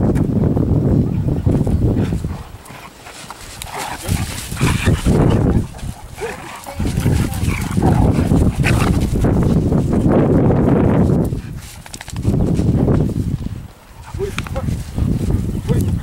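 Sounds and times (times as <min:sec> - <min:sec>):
low wind rumble on microphone: 0:00.0 - 0:16.0
dogs barking and whining: 0:02.3 - 0:09.1.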